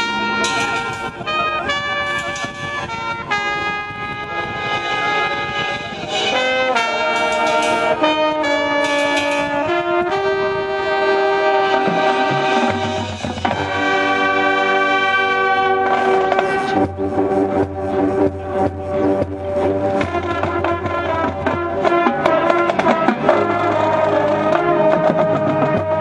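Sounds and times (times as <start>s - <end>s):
brass band playing held chords: 0.0s - 26.0s
low brass part: 0.0s - 26.0s.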